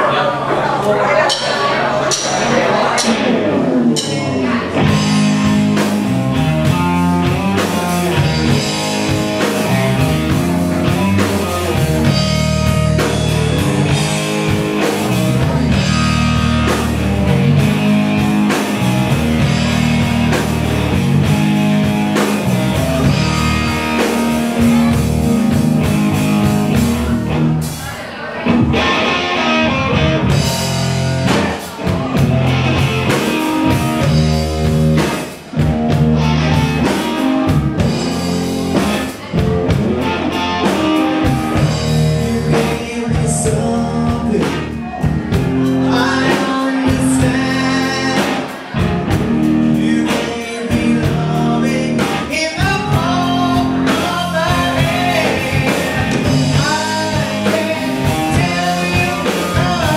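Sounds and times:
electric guitars: 0:00.0 - 0:59.9
drum kit: 0:00.8 - 0:59.9
person singing: 0:36.2 - 0:59.9.

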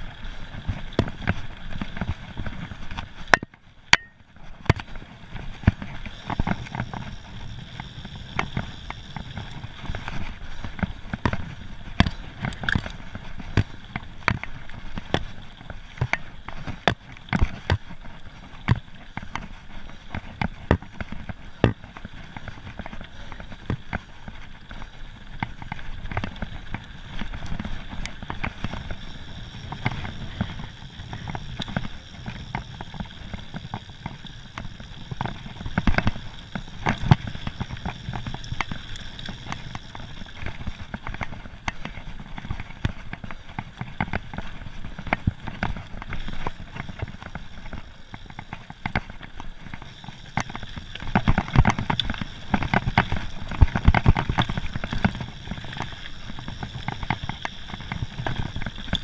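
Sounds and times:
bike rattling over gravel: 0:00.0 - 0:59.0.

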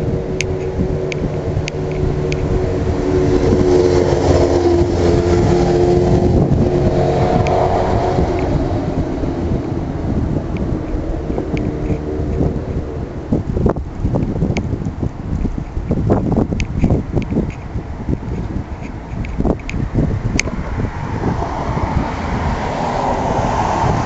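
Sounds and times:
vehicle engine running: 0:00.0 - 0:24.0.

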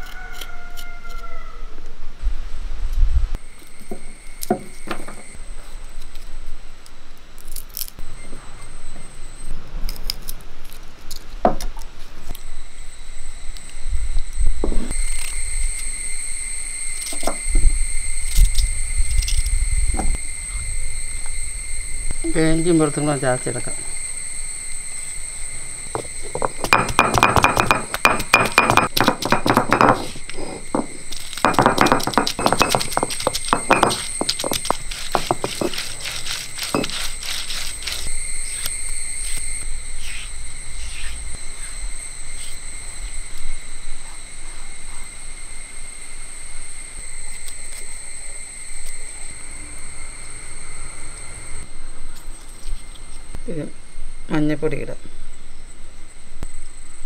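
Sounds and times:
stone pestle knocking on stone: 0:26.0 - 0:35.8.

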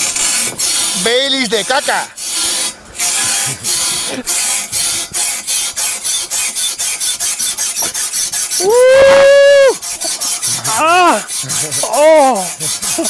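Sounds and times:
rapid rhythmic rasping: 0:00.0 - 0:13.0
man yelling: 0:08.6 - 0:09.8, 0:10.7 - 0:12.6.

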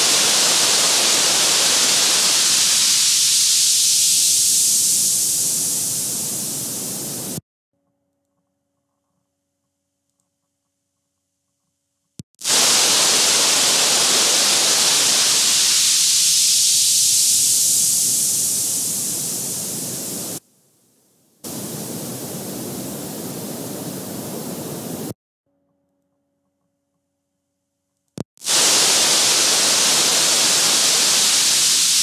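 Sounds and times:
loud static hiss: 0:00.0 - 0:07.4, 0:12.4 - 0:20.4, 0:21.4 - 0:25.2, 0:28.4 - 0:32.0
click: 0:10.1 - 0:10.8.

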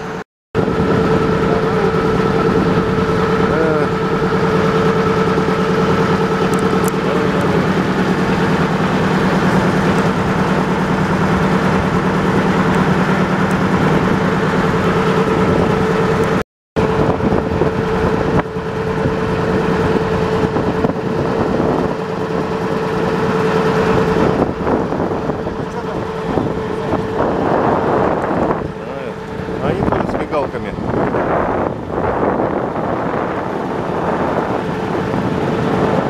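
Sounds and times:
motor boat engine running: 0:00.0 - 0:36.0
rushing water noise: 0:00.0 - 0:36.0.

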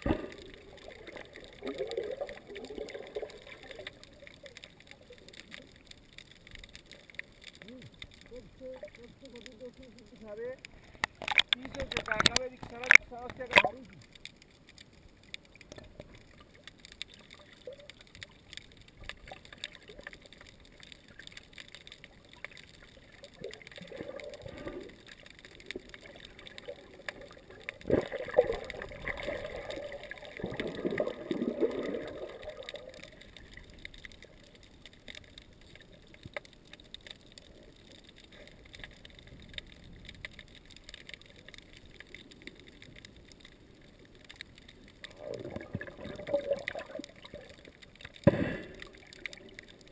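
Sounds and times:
underwater gurgling: 0:00.0 - 0:49.9.

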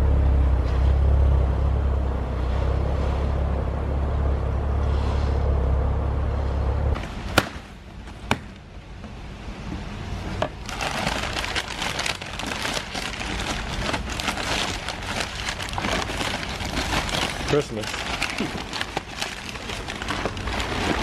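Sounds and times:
car engine rumble: 0:00.0 - 0:07.2
packing paper rustling: 0:10.5 - 0:21.0.

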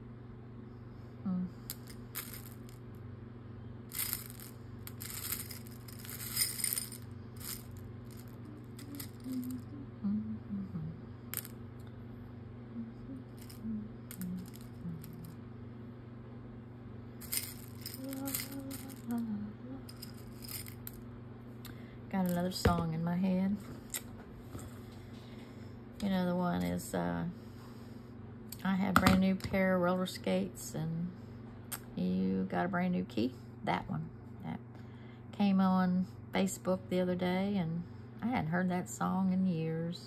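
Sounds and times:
low background hum: 0:00.0 - 0:40.0
woman humming: 0:01.2 - 0:01.8, 0:08.2 - 0:11.2, 0:12.6 - 0:15.4, 0:17.4 - 0:20.2
beads rattling and clinking: 0:01.7 - 0:02.8, 0:03.9 - 0:09.6, 0:13.3 - 0:15.4, 0:17.2 - 0:19.2, 0:19.8 - 0:21.0.

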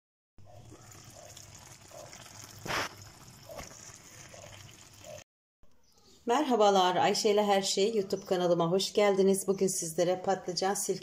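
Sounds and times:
stew simmering bubbling hiss: 0:00.5 - 0:05.2.

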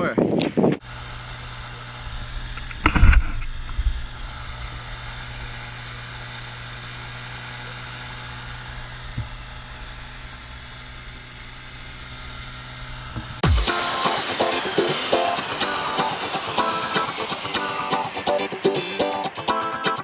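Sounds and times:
wind: 0:00.0 - 0:13.4
outboard motor drone: 0:00.8 - 0:20.0.

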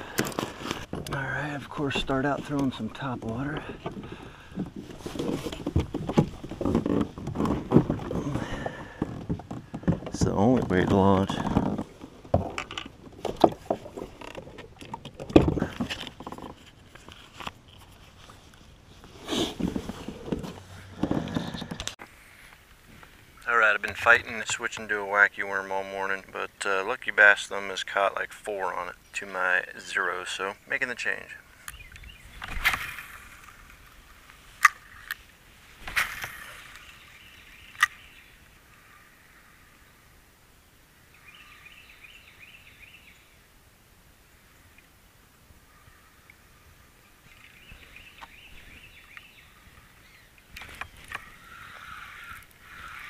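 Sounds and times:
fishing tackle clicks and knocks: 0:02.4 - 0:17.9.

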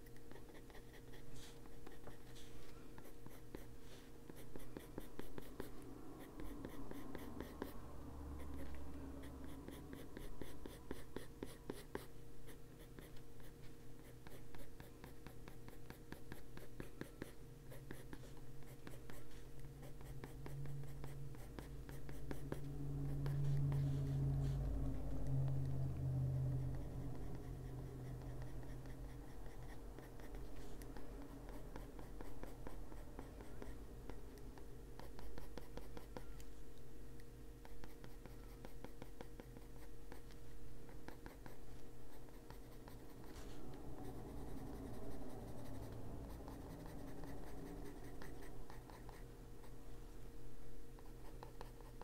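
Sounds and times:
pencil shading on paper: 0:00.0 - 0:07.8, 0:12.8 - 0:25.8, 0:35.0 - 0:36.4, 0:41.0 - 0:49.2
faint steady hum: 0:00.0 - 0:52.0.

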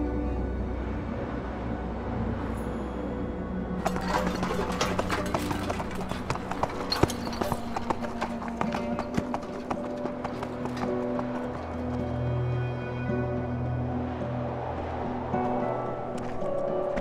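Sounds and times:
background music: 0:00.0 - 0:17.0
donkey hoofbeats clip-clopping: 0:03.8 - 0:12.0.

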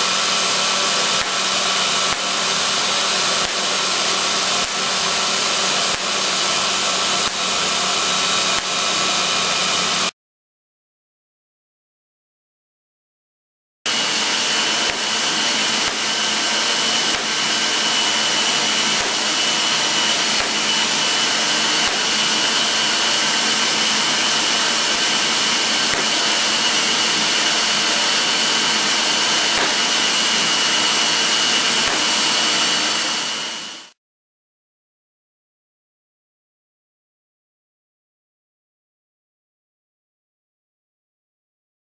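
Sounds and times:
generator motor and belt rush: 0:00.0 - 0:10.1, 0:13.9 - 0:34.0
high whine: 0:00.0 - 0:10.1, 0:13.9 - 0:34.0
sparks snapping: 0:00.1 - 0:10.0, 0:13.9 - 0:33.7.

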